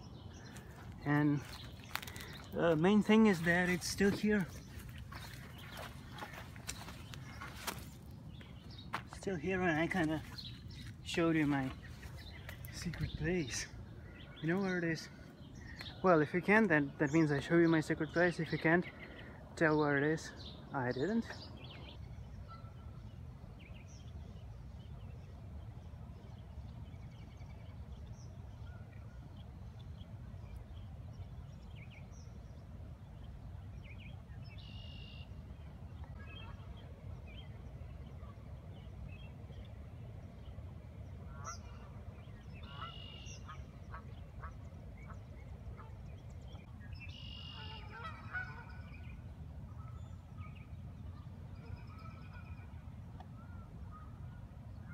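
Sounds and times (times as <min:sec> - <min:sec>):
geese calling: 0:00.0 - 0:08.0, 0:41.2 - 0:46.1, 0:47.1 - 0:50.5, 0:51.1 - 0:52.8.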